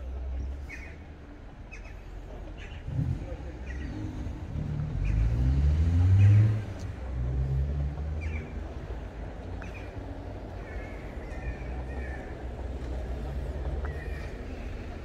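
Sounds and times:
vehicle engine accelerating: 2.7s - 9.4s.

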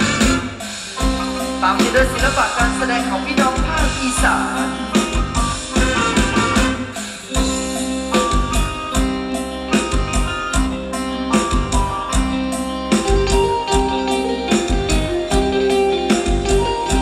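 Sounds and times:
amplified dance music: 1.1s - 6.8s.

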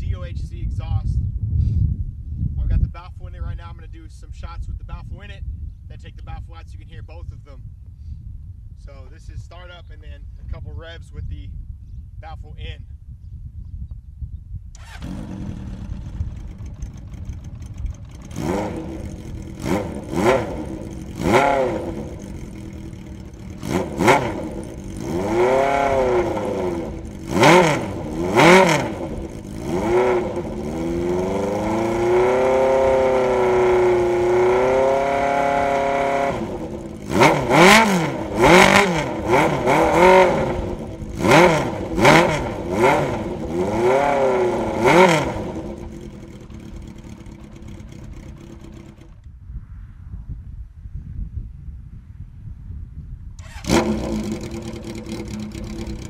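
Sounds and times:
motorcycle engine revving: 14.7s - 49.3s, 53.4s - 56.0s.

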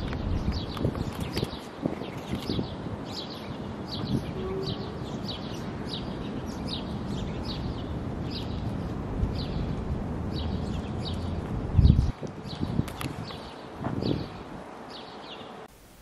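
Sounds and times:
songbird chirping: 0.0s - 15.7s
outdoor background hiss: 0.0s - 16.0s.

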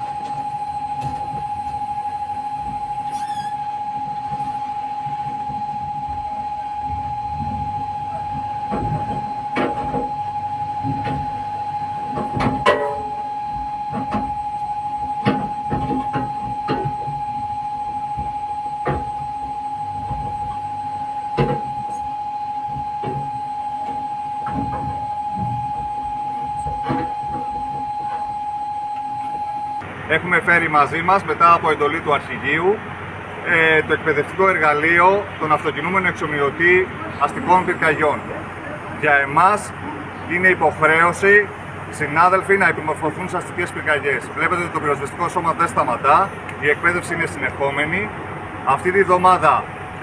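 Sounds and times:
high-pitched tone: 0.0s - 29.9s
knocks and thumps: 8.4s - 10.2s, 12.1s - 14.4s, 15.2s - 17.5s, 22.7s - 25.9s.

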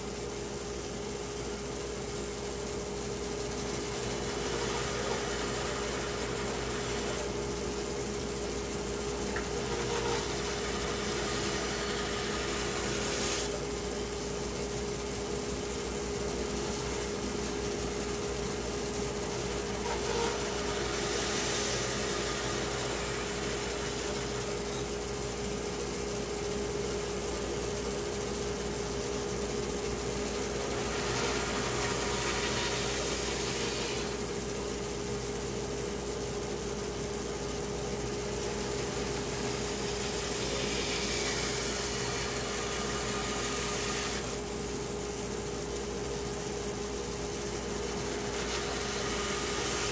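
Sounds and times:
woodworking machine milling wood: 3.6s - 13.6s, 16.7s - 25.6s, 29.3s - 34.6s, 38.3s - 45.0s, 47.5s - 49.9s.

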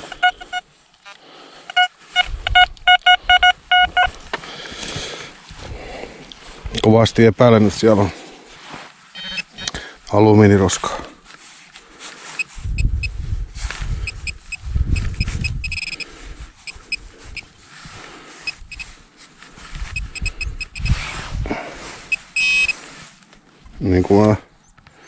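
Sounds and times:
metal detector pinpointer beeps: 0.0s - 0.7s, 1.7s - 4.2s, 9.1s - 9.8s, 12.4s - 13.2s, 14.0s - 17.5s, 18.5s - 18.9s, 19.9s - 21.1s, 22.1s - 22.8s
dirt scraping and rustling: 3.9s - 20.2s, 20.8s - 24.4s.

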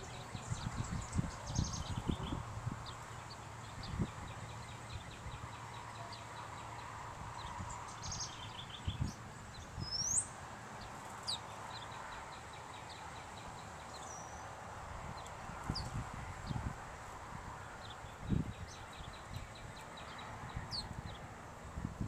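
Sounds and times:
small bird chirps: 0.0s - 14.5s, 17.8s - 21.3s
wind rumbling on microphone: 0.0s - 22.0s.

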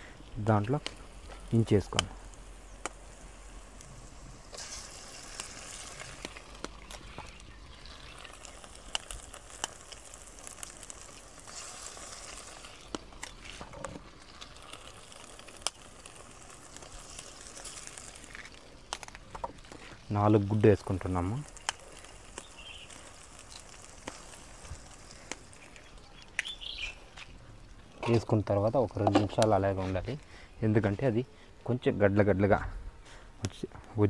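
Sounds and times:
food sizzling in a pan: 0.0s - 27.0s.

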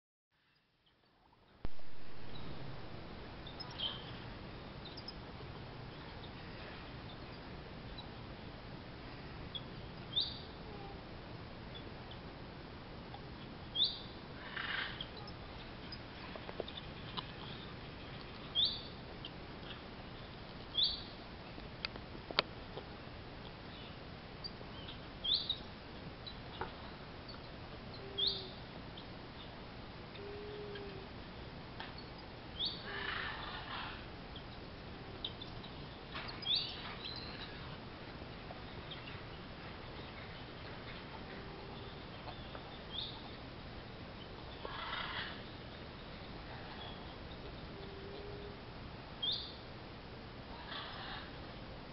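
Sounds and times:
outdoor background hiss: 0.3s - 51.9s
bird chirping: 3.4s - 5.2s, 9.5s - 11.0s, 13.7s - 21.2s, 23.7s - 29.6s, 30.2s - 43.4s, 44.2s - 48.6s, 49.2s - 49.6s.

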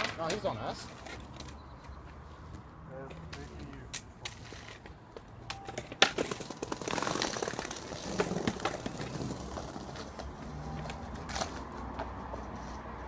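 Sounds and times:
skateboard wheels rolling on paving: 2.6s - 13.0s
skateboard clacking: 3.9s - 12.1s.

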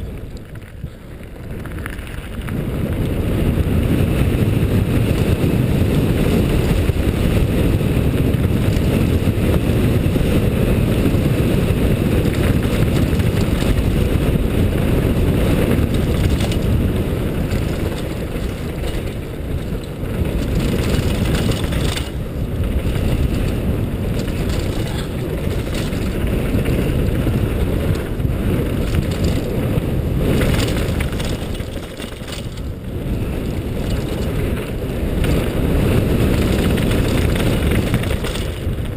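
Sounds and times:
bike tyres rolling over gravel: 0.0s - 38.9s
wind buffeting microphone: 0.0s - 38.9s.

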